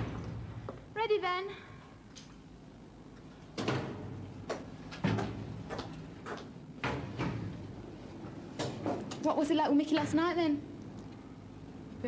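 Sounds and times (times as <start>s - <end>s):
knocks echoing off tiled walls: 0.0s - 0.9s, 3.5s - 9.2s.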